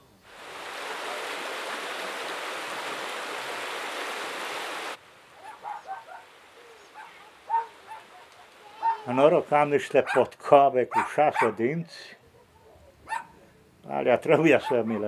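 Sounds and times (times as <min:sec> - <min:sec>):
running water rushing: 0:00.0 - 0:10.2.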